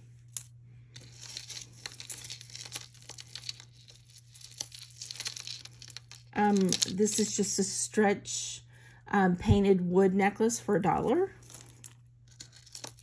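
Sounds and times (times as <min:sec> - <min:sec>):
beaded necklaces clicking and rustling: 0:00.0 - 0:07.4, 0:11.1 - 0:13.0.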